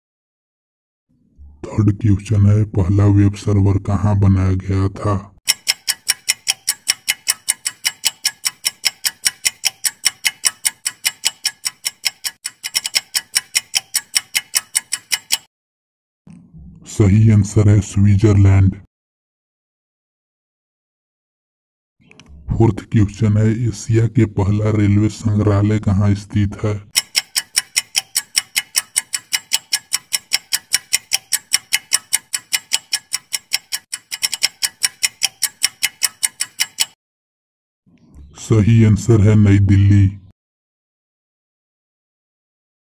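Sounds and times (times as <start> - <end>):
fast clock ticks: 5.5 - 15.5, 26.9 - 37.0.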